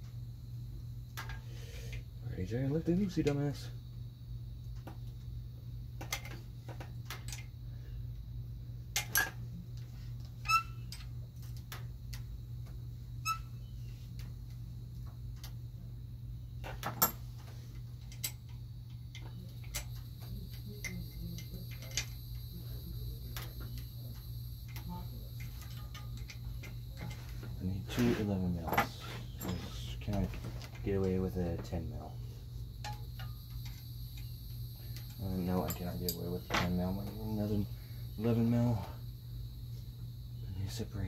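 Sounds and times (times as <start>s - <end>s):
steady low hum: 0.0s - 41.0s
hand tools clinking on metal: 35.0s - 36.8s.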